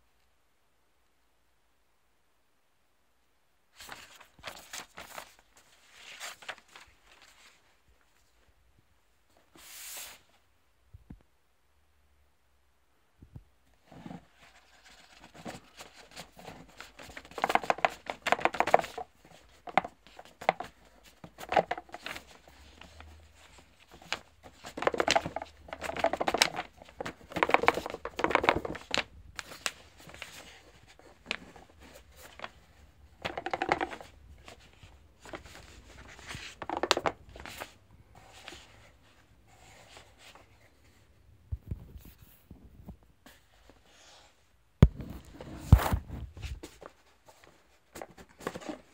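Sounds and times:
paperboard sliding and rustling: 3.8s - 7.6s, 9.3s - 10.4s, 33.4s - 41.0s, 43.2s - 48.9s.

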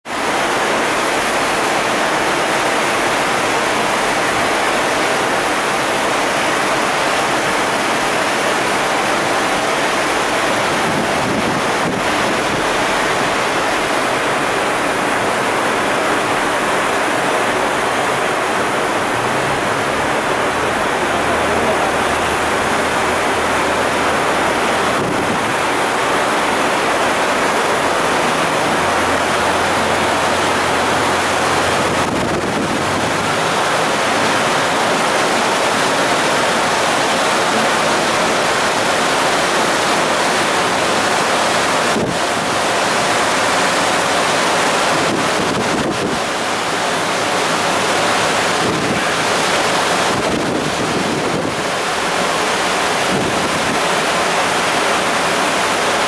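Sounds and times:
churning seawater rushing: 0.0s - 56.0s
wind buffeting microphone: 10.6s - 13.5s, 24.2s - 26.7s, 29.8s - 35.6s, 44.9s - 46.5s, 48.0s - 51.8s, 53.0s - 53.8s.

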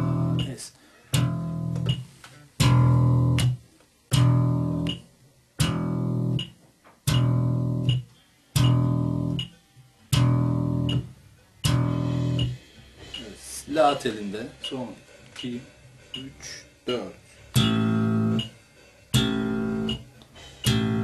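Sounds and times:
slapped electric bass notes: 0.0s - 9.5s, 10.1s - 13.4s, 17.5s - 21.0s
faint metronome clicks: 0.3s - 13.4s, 14.6s - 16.3s, 17.6s - 18.6s, 19.2s - 21.0s.

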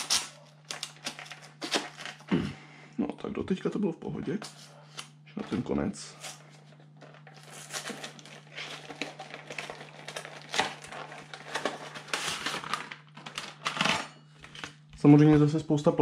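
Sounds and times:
plastic packaging crinkling: 0.0s - 2.3s, 6.2s - 14.8s
cardboard rustling: 5.5s - 14.6s.

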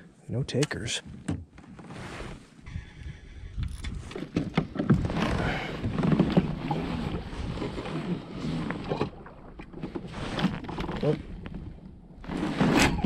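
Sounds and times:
wind buffeting microphone: 2.7s - 7.8s.

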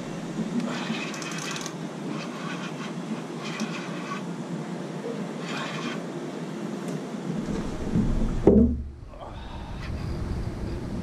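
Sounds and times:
steady low rumble: 0.0s - 0.7s, 7.2s - 11.0s
fishing reel whirring and clicking: 0.6s - 4.2s.

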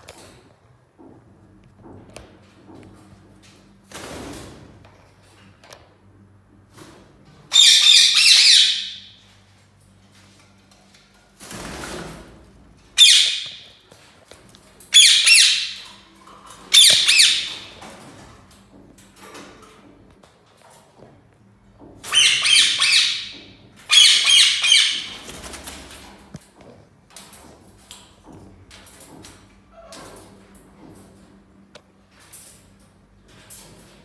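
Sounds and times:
parakeets squawking: 7.5s - 9.1s, 13.0s - 13.6s, 15.0s - 15.8s, 16.7s - 17.7s, 22.1s - 23.3s, 23.9s - 25.2s.

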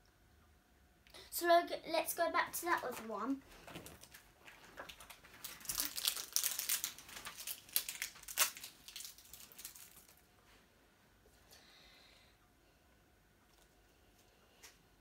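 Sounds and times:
plastic packaging crinkling: 2.7s - 10.3s.

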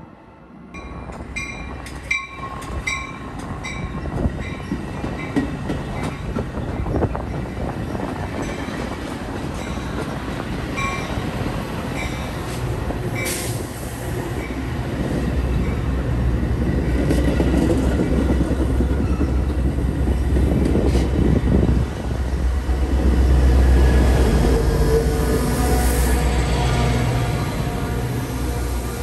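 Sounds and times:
low diesel locomotive drone: 0.0s - 29.0s.

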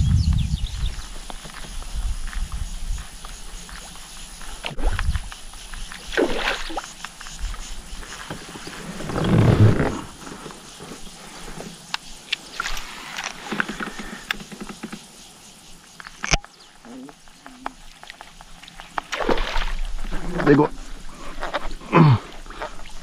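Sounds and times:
water sloshing: 6.0s - 6.9s.

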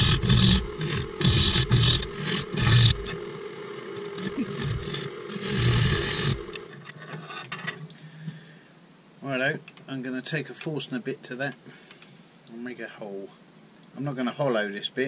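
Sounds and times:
lathe spinning: 0.0s - 7.2s
tool scraping wood on lathe: 0.0s - 7.6s.

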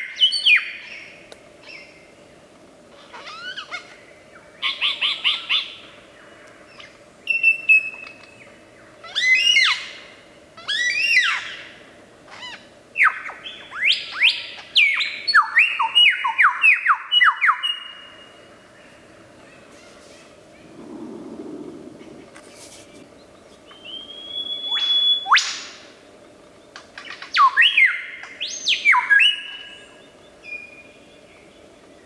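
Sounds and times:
lyrebird whistled song: 6.7s - 8.5s, 23.6s - 25.7s, 27.0s - 31.2s.

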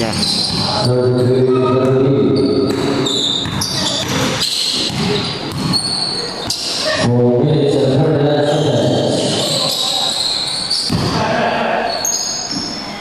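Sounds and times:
basketball bouncing on court: 0.0s - 0.9s, 1.8s - 6.8s
shoes squeaking: 2.4s - 7.0s, 9.5s - 11.0s.

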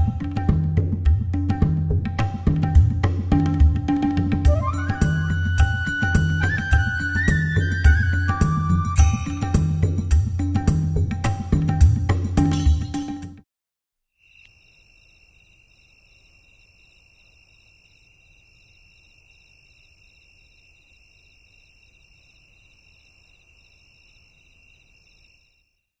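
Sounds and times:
crickets and insects trilling: 14.2s - 25.9s.

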